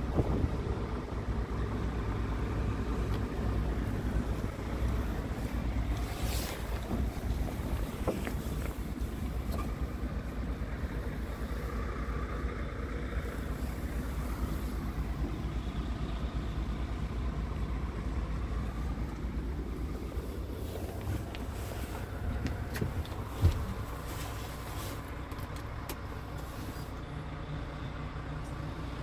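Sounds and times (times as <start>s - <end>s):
wind on microphone: 0.0s - 0.8s
diesel truck engine idling: 0.0s - 29.0s.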